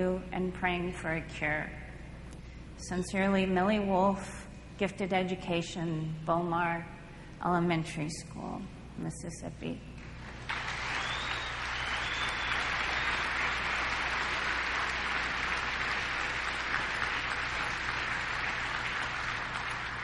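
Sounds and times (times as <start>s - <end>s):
audience applauding: 10.3s - 20.0s.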